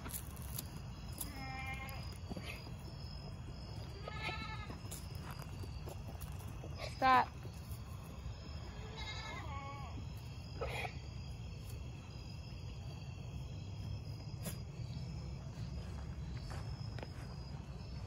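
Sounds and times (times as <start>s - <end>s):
goat bleating: 1.2s - 2.2s, 3.9s - 4.8s, 8.7s - 10.0s.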